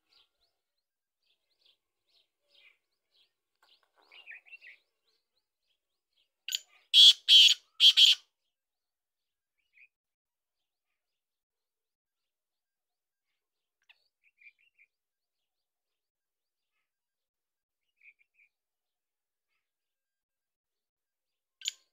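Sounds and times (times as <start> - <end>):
faint bird chirps: 0.0 - 8.4, 17.8 - 18.6
bird harsh calls: 6.5 - 8.3.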